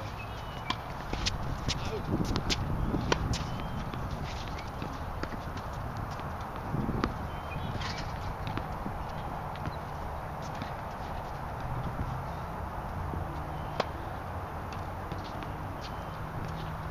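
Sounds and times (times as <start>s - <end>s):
tennis balls struck and bouncing: 0.0s - 16.9s.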